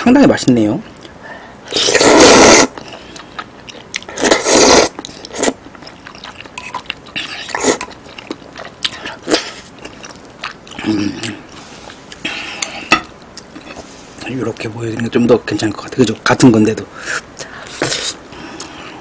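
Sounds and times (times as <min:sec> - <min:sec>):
person slurping noodles: 0:01.7 - 0:03.0, 0:04.2 - 0:05.6
wet chewing: 0:01.7 - 0:13.9.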